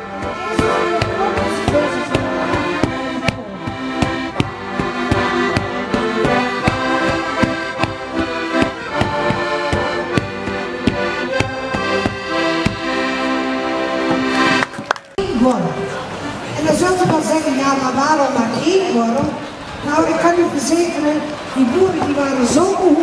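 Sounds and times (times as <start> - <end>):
accordion playing folk tune: 0.0 - 15.0.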